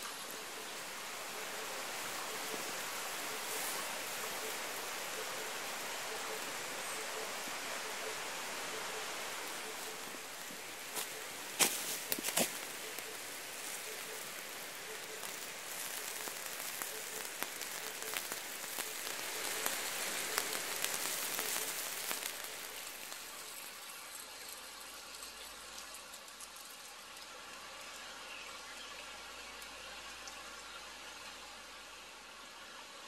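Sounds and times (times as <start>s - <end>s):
meat sizzling on hot stone: 0.0s - 24.7s.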